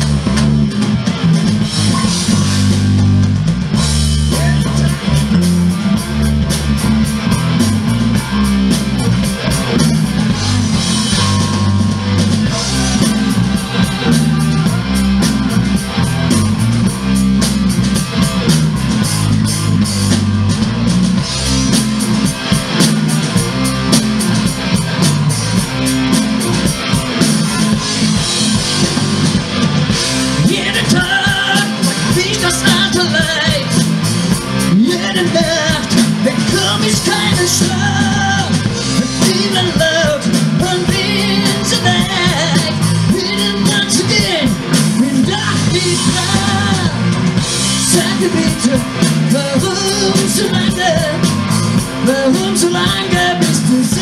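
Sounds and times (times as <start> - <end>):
bass guitar: 0.0 - 54.0
distorted electric guitar: 0.0 - 54.0
drum kit beat: 0.0 - 54.0.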